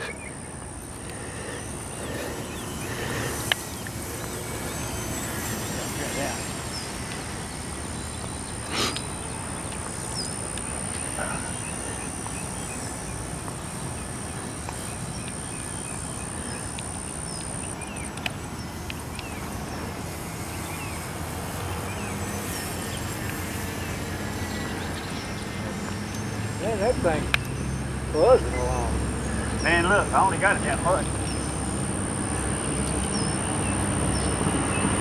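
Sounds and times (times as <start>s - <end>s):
thin high tone: 0.0s - 9.0s
small birds chirping: 0.0s - 35.0s.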